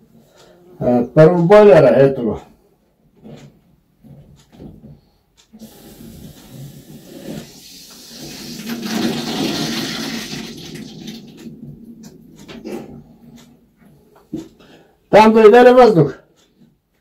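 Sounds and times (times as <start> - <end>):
water rushing into tank: 5.6 - 11.4.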